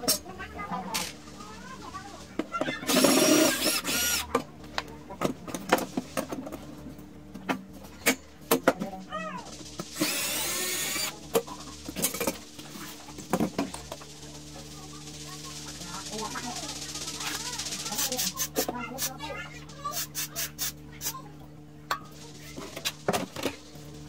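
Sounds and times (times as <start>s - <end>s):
cordless drill running: 2.9s - 4.3s, 9.9s - 11.2s.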